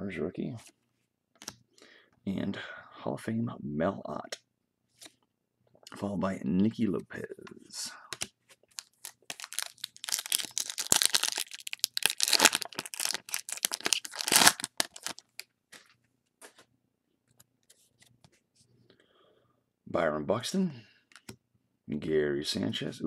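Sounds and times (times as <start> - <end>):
foil wrapper tearing and crinkling: 8.8 - 15.4.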